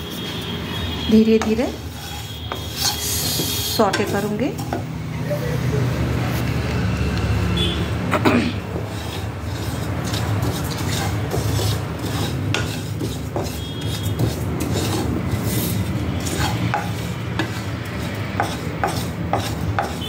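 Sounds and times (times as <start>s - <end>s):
wooden spatula scraping seeds in pan: 1.2s - 4.8s, 8.7s - 20.0s.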